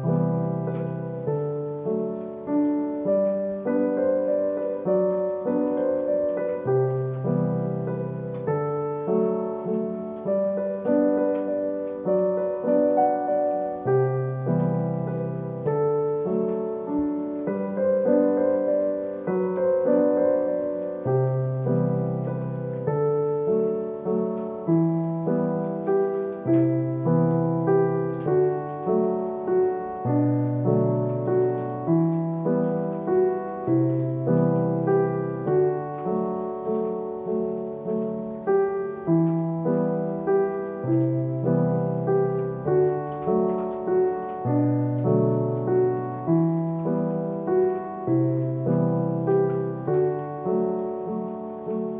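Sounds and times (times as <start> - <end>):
gentle piano music: 0.0 - 51.9.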